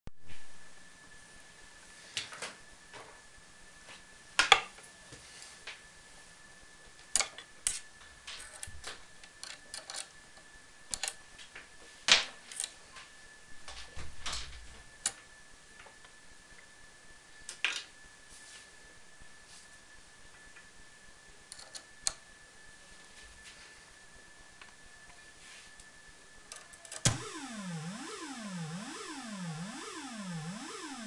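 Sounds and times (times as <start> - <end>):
faint high tone: 27.1 - 31.0.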